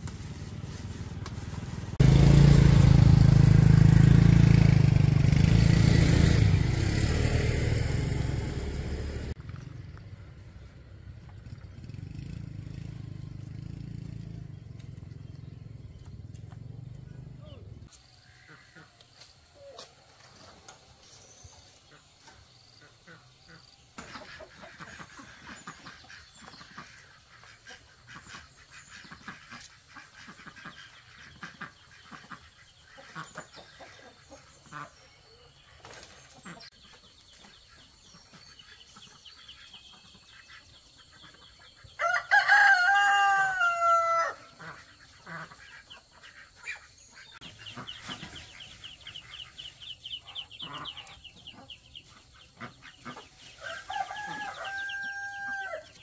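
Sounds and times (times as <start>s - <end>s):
rooster crowing: 42.0s - 44.6s, 53.6s - 56.0s.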